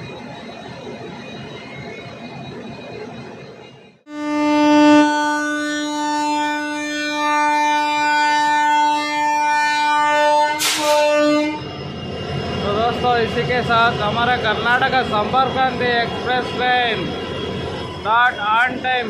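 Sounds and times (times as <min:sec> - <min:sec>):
train horn long note: 0:04.1 - 0:11.7.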